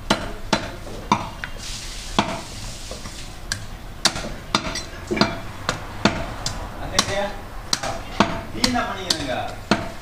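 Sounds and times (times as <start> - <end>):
cleaver chopping on wooden block: 0.0 - 1.4, 3.5 - 10.0.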